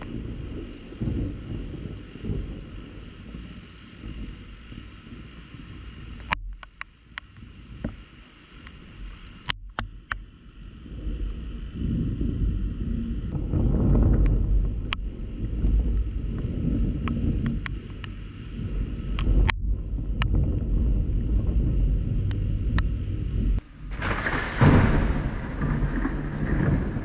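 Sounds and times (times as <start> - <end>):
loud thunderclap: 0.0 - 5.2, 11.8 - 17.8, 18.5 - 27.0
raindrops ticking on a case: 0.0 - 10.6, 12.4 - 27.0
low wavering rumble: 0.0 - 27.0
rain hiss: 0.0 - 27.0.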